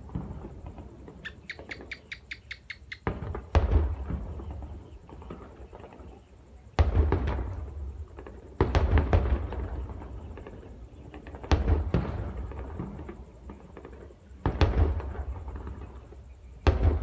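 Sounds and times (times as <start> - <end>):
loud weapon booms: 3.1 - 4.6, 16.6 - 17.0
rolling echo: 6.8 - 17.0.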